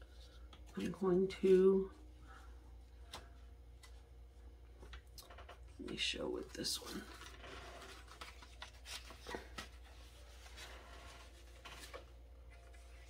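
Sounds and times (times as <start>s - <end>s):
low steady hum: 0.0s - 13.0s
paper strips rustling and tapping: 4.8s - 13.0s.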